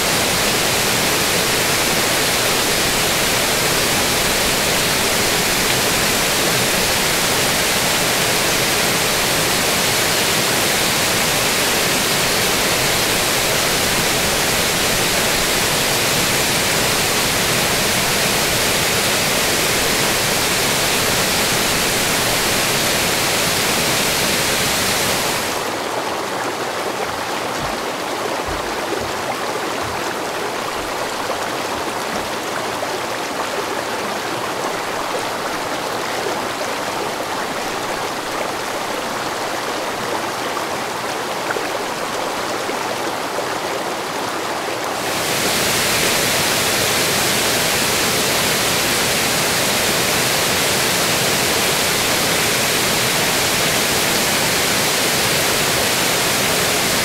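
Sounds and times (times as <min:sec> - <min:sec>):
water rushing down rock face: 0:00.0 - 0:32.8, 0:44.7 - 0:57.0
stream splashing over boulders: 0:00.0 - 0:57.0.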